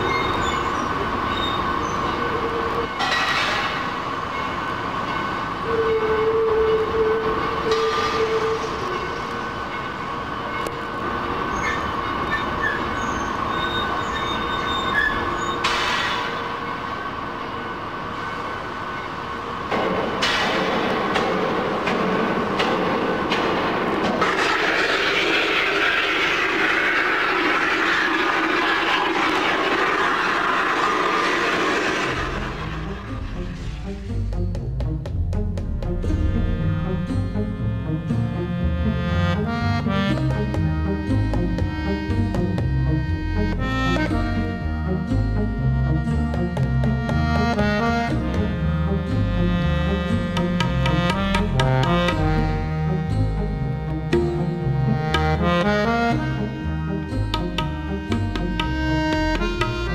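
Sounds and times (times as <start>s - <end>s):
squealing metal: 0.0s - 10.7s, 11.4s - 16.8s
machinery whining: 0.0s - 59.9s
loud rushing hiss: 20.8s - 34.0s.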